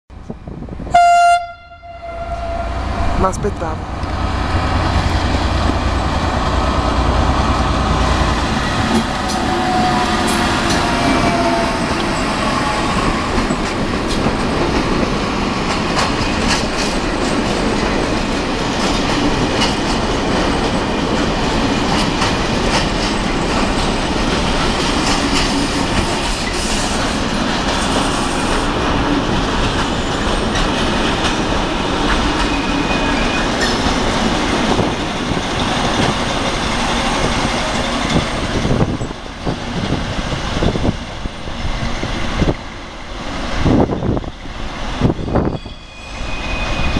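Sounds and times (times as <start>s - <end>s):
diesel locomotive passing: 0.1s - 46.9s
train wheels clattering over rails: 4.1s - 42.7s
wheel squeals: 45.5s - 46.9s.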